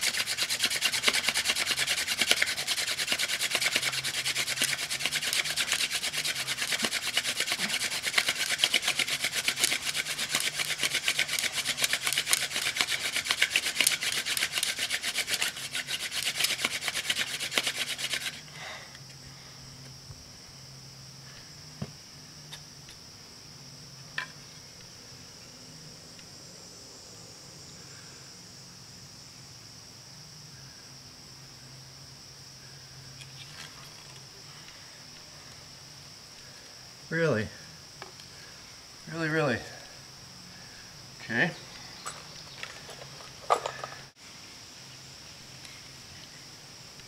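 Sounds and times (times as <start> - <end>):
wooden spindle rasping grind: 0.0 - 18.4.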